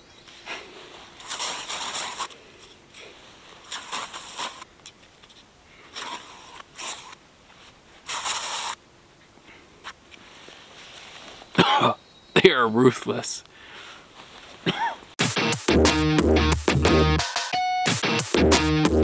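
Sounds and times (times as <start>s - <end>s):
aerosol can spraying: 1.2s - 2.3s, 3.7s - 4.7s, 6.0s - 7.2s, 8.1s - 8.8s.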